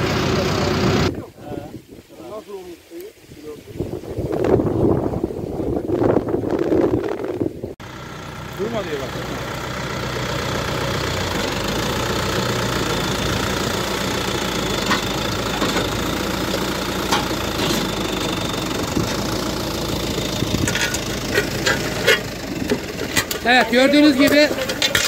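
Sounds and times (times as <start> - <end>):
diesel tractor engine running: 0.0 - 1.2, 7.2 - 25.0.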